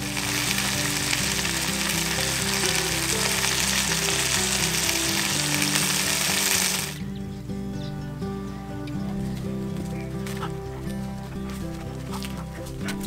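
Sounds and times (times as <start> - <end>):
chicken sizzling in a skillet: 0.0 - 7.0
background music: 0.0 - 13.0.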